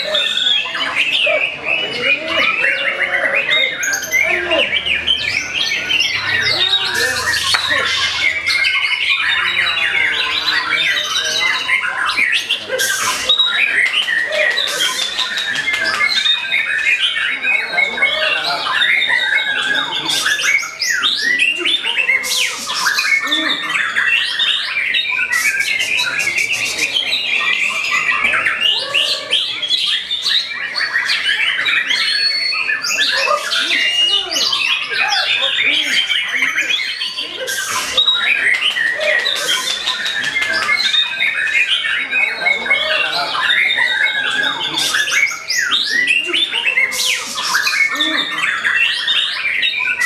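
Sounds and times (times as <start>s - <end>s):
bird harsh rasping calls: 0.0s - 50.0s
bird singing whistles and trills: 0.0s - 50.0s.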